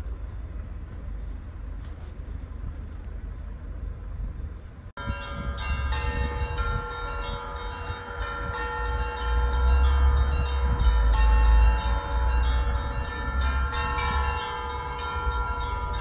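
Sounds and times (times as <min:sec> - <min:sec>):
street noise: 0:00.0 - 0:16.0
church bells pealing: 0:05.0 - 0:16.0.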